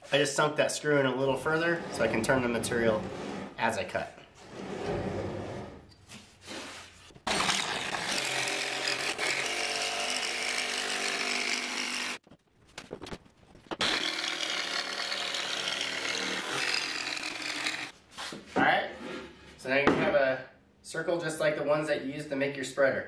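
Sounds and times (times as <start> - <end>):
jigsaw cutting board: 7.2 - 12.2, 13.8 - 17.9.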